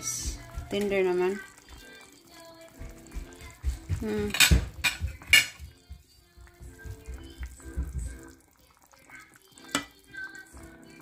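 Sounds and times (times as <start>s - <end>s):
stirring soup in a pot: 0.0s - 11.0s
utensil knocking on cast-iron pot: 4.0s - 5.6s.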